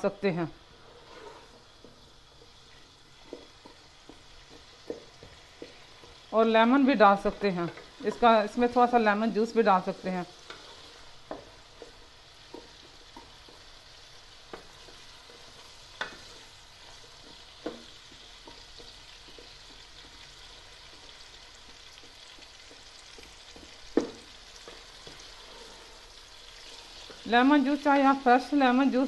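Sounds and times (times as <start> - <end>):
onions sizzling in oil: 0.0 - 29.0
wooden spoon knocking against pot: 21.6 - 25.2.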